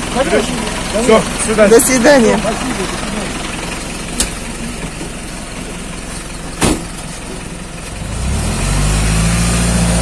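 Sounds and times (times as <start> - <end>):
truck engine idling and revving: 0.0 - 10.0
sharp knock: 6.6 - 7.0.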